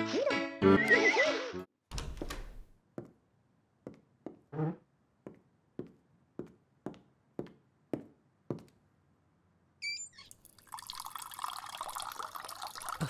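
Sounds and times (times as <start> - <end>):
door pushed shut: 1.9 - 2.7
footsteps on hard floor: 3.8 - 8.7
water running into a glass: 10.3 - 13.0.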